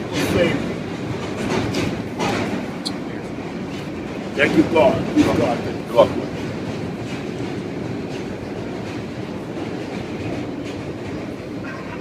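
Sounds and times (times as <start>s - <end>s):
subway car wheels on rails: 0.0s - 12.0s.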